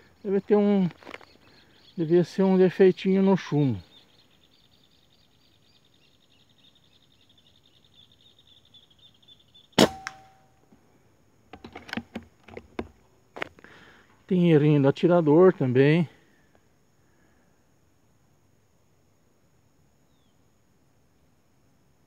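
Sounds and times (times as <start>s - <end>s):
faint insect chirring: 0.0s - 22.0s
air rifle shot crack: 9.8s - 10.5s.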